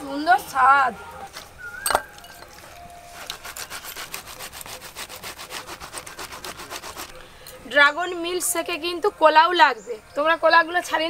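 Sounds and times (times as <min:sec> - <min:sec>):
metal grater scraping fruit: 0:03.1 - 0:07.2.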